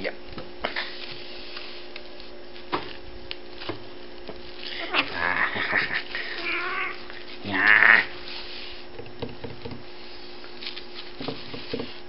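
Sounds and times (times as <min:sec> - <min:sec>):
cat meowing: 0:06.4 - 0:08.1.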